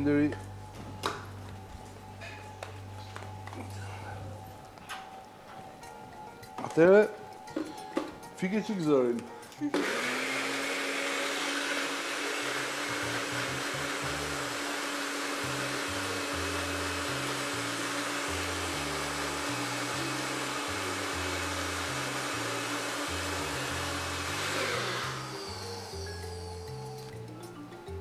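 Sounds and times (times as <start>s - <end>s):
blender motor whirring: 9.7s - 27.1s.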